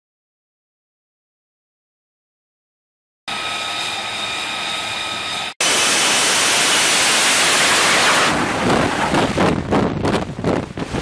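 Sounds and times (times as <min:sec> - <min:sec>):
jet engine whine: 0:03.3 - 0:09.7
jet engine roar: 0:03.3 - 0:11.0
wind buffeting: 0:06.6 - 0:11.0.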